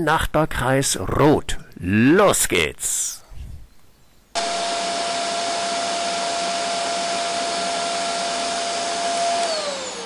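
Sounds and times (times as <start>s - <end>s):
constant whine: 4.4s - 10.0s.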